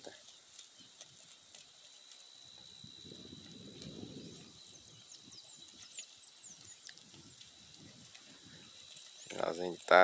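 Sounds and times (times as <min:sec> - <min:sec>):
sheep cropping grass: 0:00.0 - 0:10.0
small birds chirping: 0:00.0 - 0:10.0.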